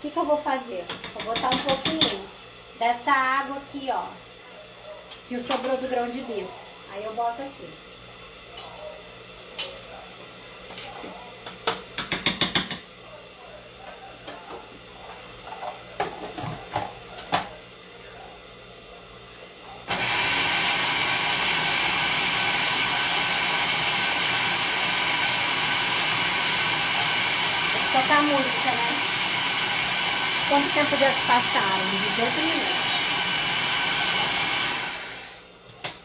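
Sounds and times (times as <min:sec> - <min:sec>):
food processor motor running: 0:19.9 - 0:35.5.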